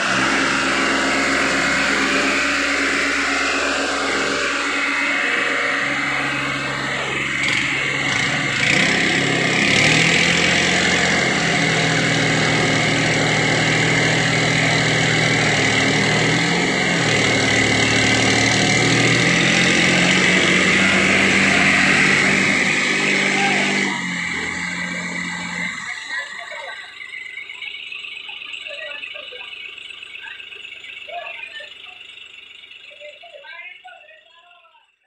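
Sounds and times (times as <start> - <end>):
tractor engines running hard: 0.0 - 35.0.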